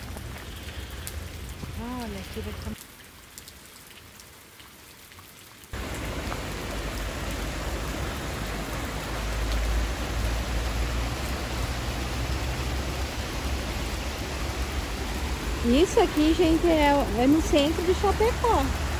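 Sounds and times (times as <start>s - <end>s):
stream rushing over rocks: 5.7s - 18.9s.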